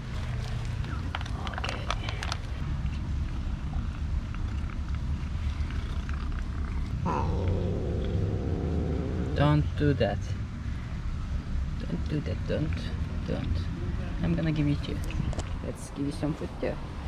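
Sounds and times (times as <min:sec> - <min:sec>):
rough cat sound: 0:05.6 - 0:09.8
kitten purring loudly: 0:05.8 - 0:09.8.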